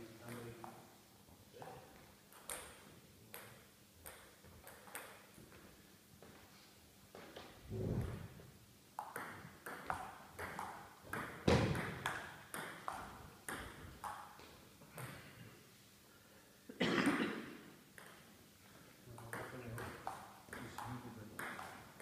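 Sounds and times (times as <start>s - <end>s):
ping pong ball clicking: 2.3s - 5.2s, 9.0s - 14.4s, 18.0s - 18.2s, 19.2s - 22.0s.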